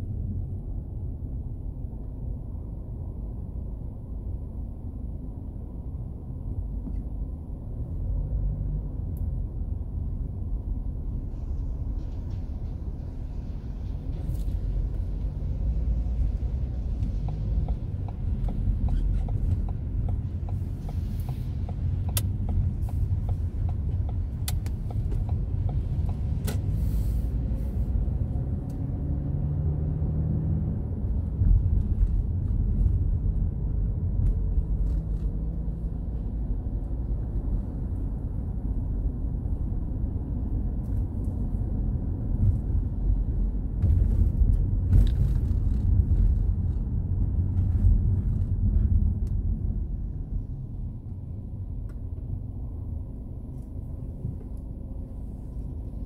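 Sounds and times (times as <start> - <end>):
car engine and road rumble: 0.0 - 56.0
tyres hissing on wet road: 26.7 - 27.9.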